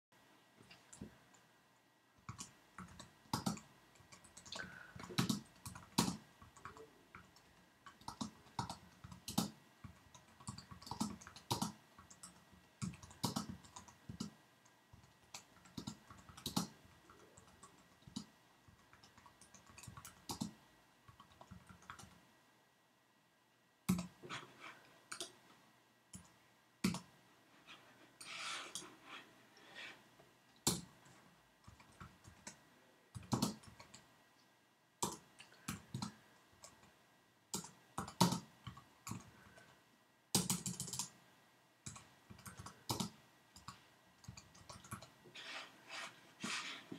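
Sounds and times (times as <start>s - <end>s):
typing on keyboard: 2.2s - 22.2s, 23.9s - 24.2s, 26.1s - 27.1s, 30.6s - 34.1s, 35.0s - 36.9s, 37.5s - 39.7s, 40.3s - 41.2s, 41.8s - 45.2s.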